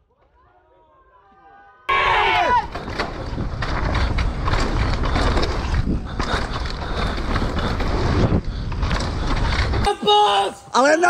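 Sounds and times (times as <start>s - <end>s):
bike rattling and knocking: 2.6s - 9.9s
rumble of tyres and wind: 2.6s - 9.9s.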